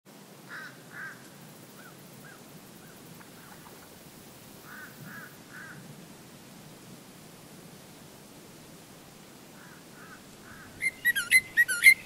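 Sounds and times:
steady background hiss: 0:00.1 - 0:12.0
flamingos honking: 0:09.6 - 0:12.0.

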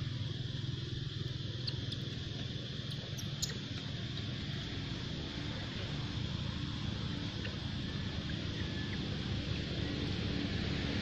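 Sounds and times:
low background hum: 0:00.0 - 0:11.0
baby monkey squeaking: 0:01.5 - 0:04.4.

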